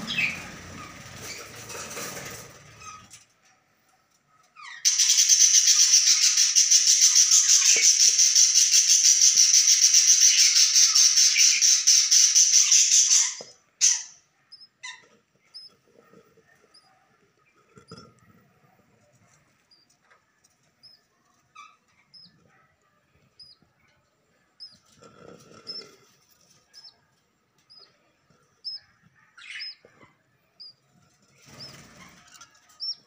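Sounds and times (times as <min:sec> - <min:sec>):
chicks begging chatter: 0:00.0 - 0:02.9, 0:04.7 - 0:27.0, 0:27.6 - 0:33.0.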